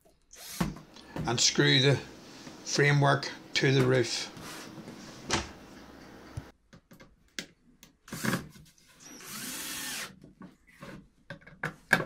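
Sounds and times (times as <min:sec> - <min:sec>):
cordless drill boring wood: 0:00.3 - 0:00.7, 0:09.0 - 0:10.2.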